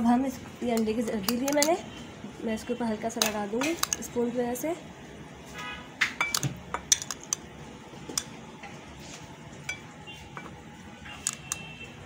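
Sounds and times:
metal spoon tapping glassware: 6.2 - 7.4, 9.7 - 10.5.

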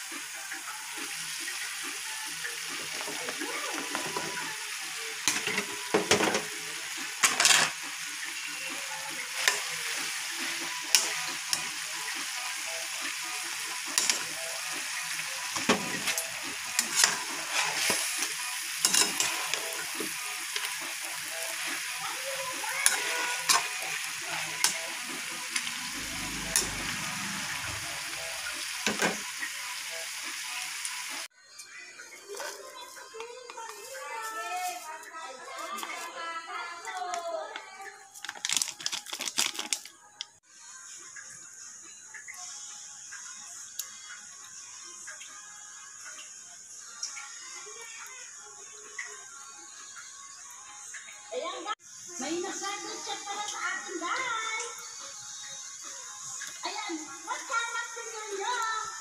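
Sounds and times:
food sizzling in a wok: 0.0 - 39.8, 40.5 - 59.0
spoon scraping a pan: 7.2 - 7.8, 15.5 - 20.7.

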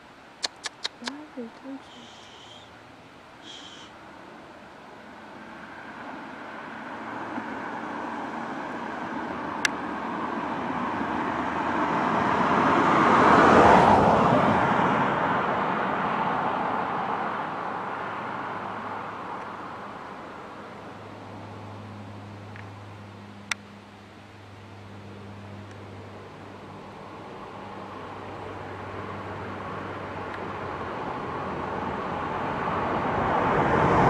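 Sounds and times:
road vehicle passing by: 0.0 - 34.0
sharp click: 0.4 - 1.2.

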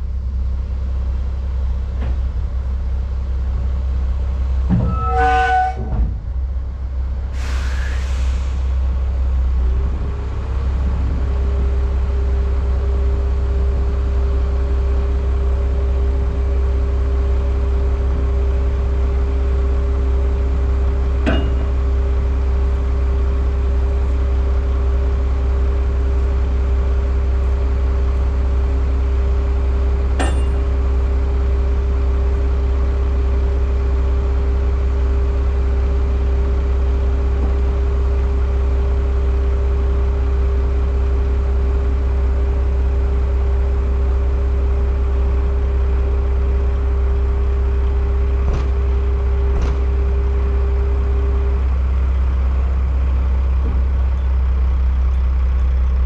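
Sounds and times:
truck diesel engine idling: 0.0 - 4.7, 6.1 - 56.0
short hiss: 7.4 - 8.7.

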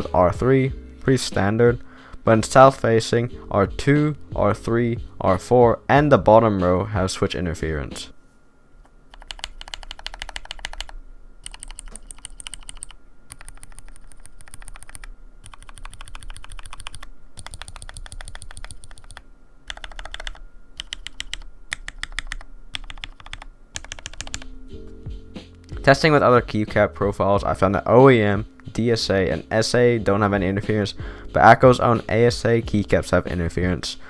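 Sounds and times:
typing on mechanical keyboard: 9.1 - 24.5.

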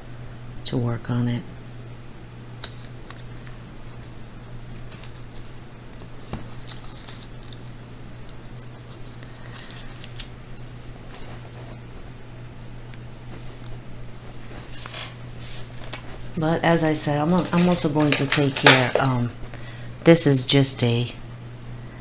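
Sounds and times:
steady low hum: 0.0 - 22.0
scratchy clicks and rustles: 12.9 - 19.3.

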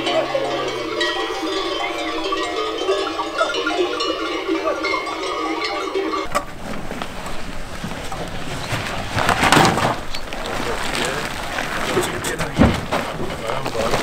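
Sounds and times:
goat bells jangling: 0.0 - 6.6.

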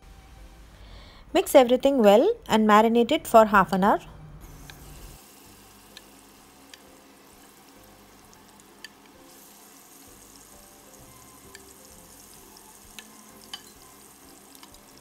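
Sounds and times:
fork tapping on glass bowl: 13.0 - 13.8.

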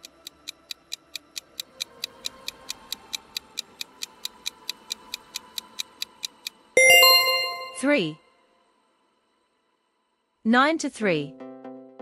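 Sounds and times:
clock-like timer ticking: 0.0 - 6.8.

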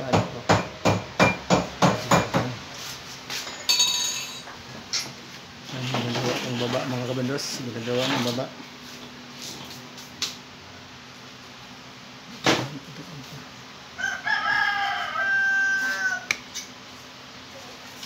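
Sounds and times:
rooster crowing: 13.9 - 16.4.

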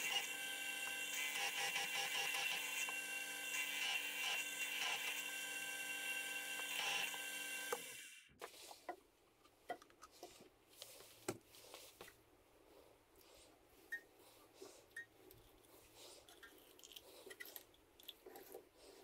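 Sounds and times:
pillar drill cutting metal: 0.0 - 8.3.

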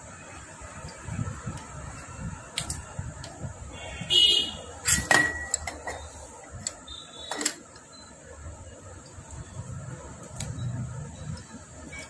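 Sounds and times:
metal tools clinking and scraping: 4.8 - 6.7
sharp metallic clicks: 4.8 - 8.0.

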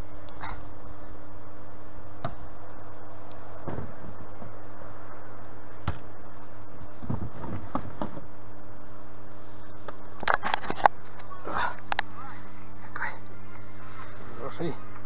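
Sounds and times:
low hum: 0.0 - 15.0
faint clicks and rustles: 9.3 - 12.1.

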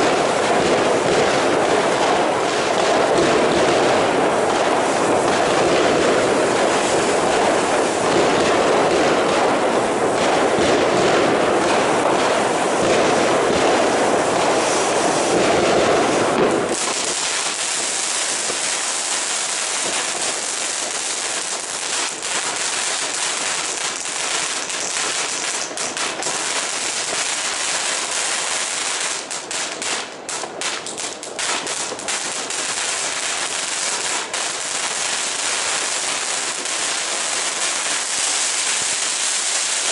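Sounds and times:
firework fountain hissing: 0.0 - 39.9
firework stars crackling: 0.0 - 39.9.

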